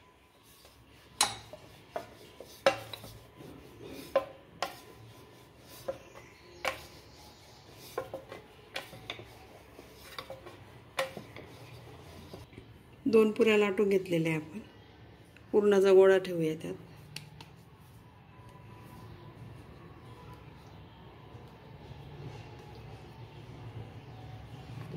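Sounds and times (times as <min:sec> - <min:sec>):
rolling pin rubbing on dough: 0:00.3 - 0:12.5.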